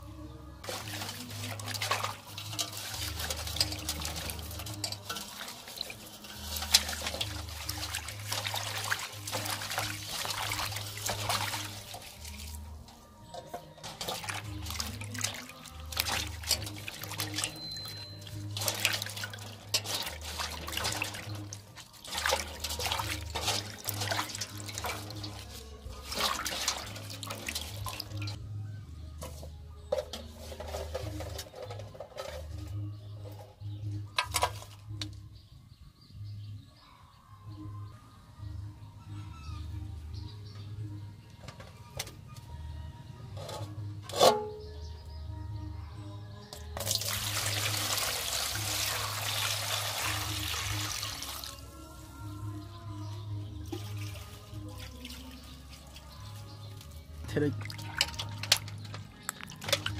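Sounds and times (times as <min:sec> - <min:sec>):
quiet background music: 0:00.0 - 0:59.9
water splashing in metal basin: 0:00.6 - 0:28.4, 0:33.6 - 0:35.2, 0:46.5 - 0:59.9.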